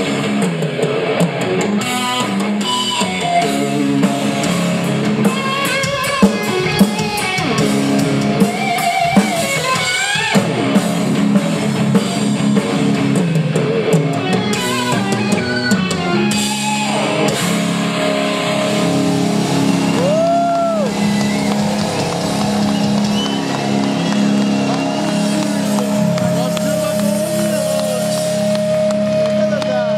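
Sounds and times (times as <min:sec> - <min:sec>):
drum kit: 0:00.0 - 0:29.9
electric guitar solo: 0:00.0 - 0:29.9
rhythm guitar: 0:00.0 - 0:29.9.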